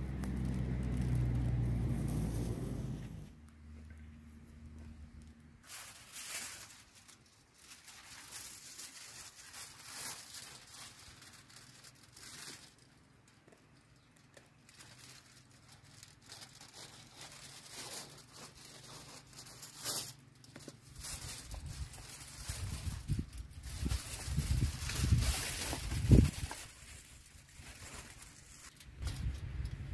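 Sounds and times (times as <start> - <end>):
aluminium foil crinkling and tearing: 0.0 - 2.5, 5.2 - 29.7.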